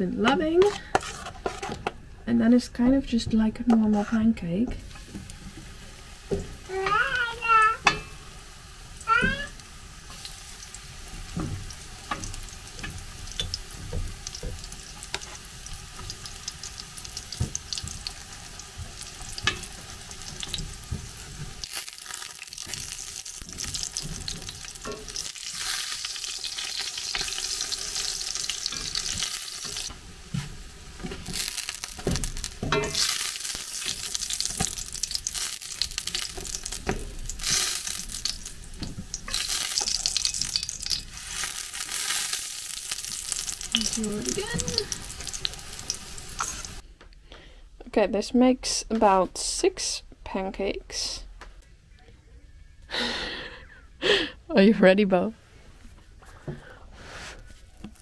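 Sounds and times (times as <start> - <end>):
spatula scraping and tapping: 0.3 - 2.0, 18.8 - 19.8, 32.0 - 33.1
batter sizzling in oil: 4.8 - 46.8.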